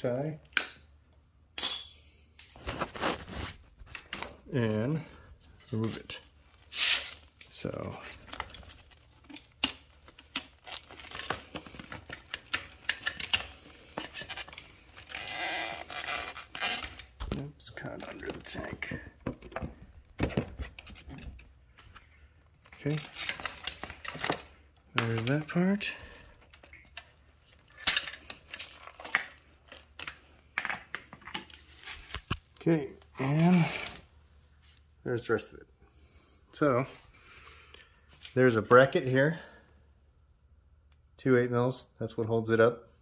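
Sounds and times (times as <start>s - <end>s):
plastic and metal parts clinking: 6.9s - 32.4s.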